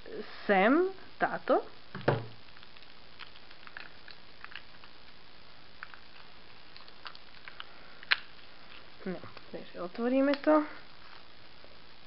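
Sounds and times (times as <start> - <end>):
steady low hiss: 0.0 - 12.0
knock on wooden table: 2.0 - 2.3.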